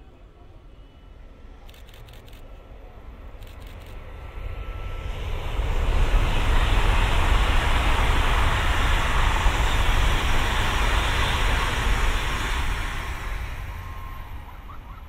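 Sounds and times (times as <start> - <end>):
high-speed train passing: 0.0 - 15.0.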